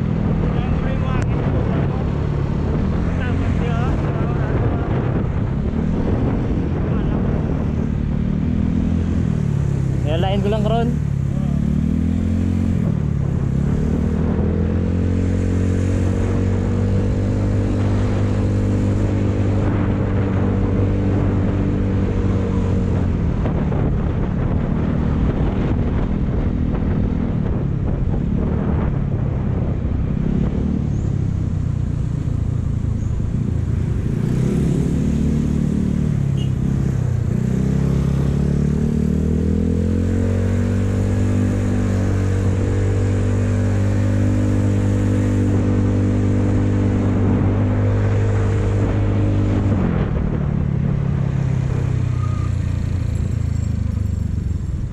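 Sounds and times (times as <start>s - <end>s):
motorcycle engine running: 0.0s - 54.9s
wind and road noise: 0.0s - 54.9s.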